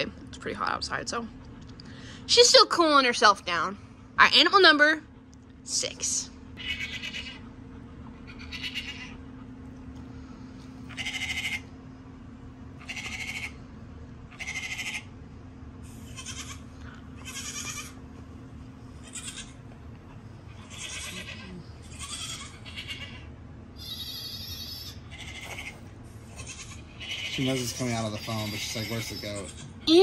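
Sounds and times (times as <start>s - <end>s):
goat bleating through phone speaker: 20.7s - 23.2s, 26.4s - 30.0s.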